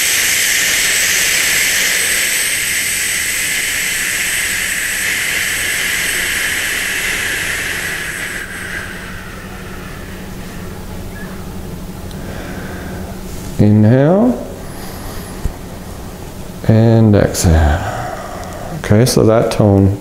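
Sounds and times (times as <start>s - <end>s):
person exhaling a long hiss: 0.0s - 11.2s, 12.1s - 13.3s, 14.6s - 16.0s, 17.4s - 18.8s.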